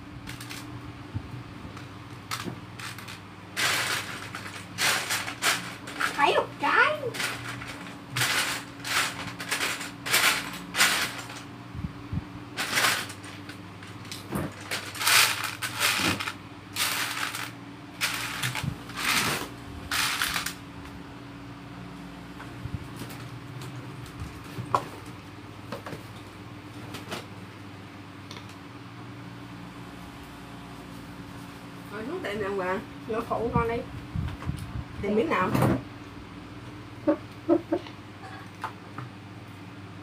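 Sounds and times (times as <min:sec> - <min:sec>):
fan hum: 0:00.0 - 0:40.0
plastic bricks rattling: 0:02.3 - 0:06.2, 0:07.1 - 0:11.5, 0:12.6 - 0:20.6.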